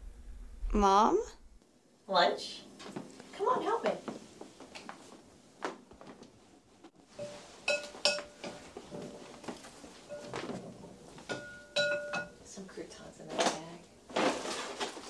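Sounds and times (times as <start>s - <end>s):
kitchen items knocking and clinking: 7.2s - 12.4s.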